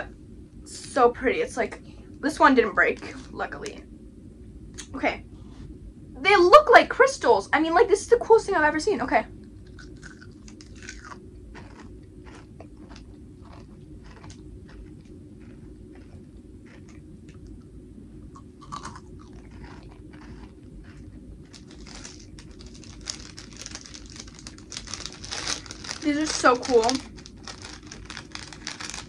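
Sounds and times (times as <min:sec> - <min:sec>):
crunching and chewing candy: 0:09.6 - 0:17.6, 0:18.3 - 0:29.0
plastic wrapper crinkling: 0:19.4 - 0:29.0.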